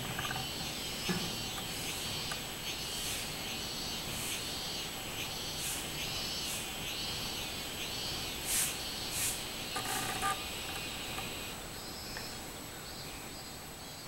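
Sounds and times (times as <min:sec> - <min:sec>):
cicada singing: 0:00.0 - 0:13.0
hissy bursts: 0:08.4 - 0:10.1.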